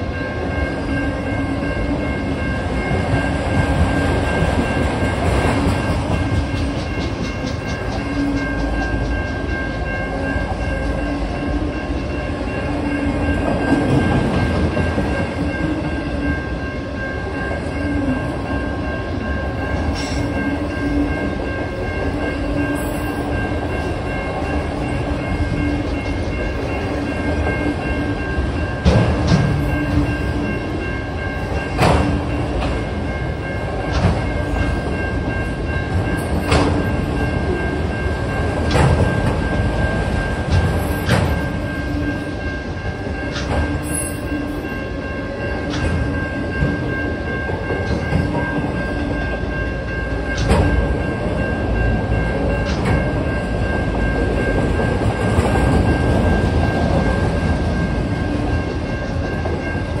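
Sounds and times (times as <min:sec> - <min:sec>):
train wheels rumbling on rails: 0:00.0 - 1:00.0
wheels clicking over rail joints: 0:38.4 - 0:41.6.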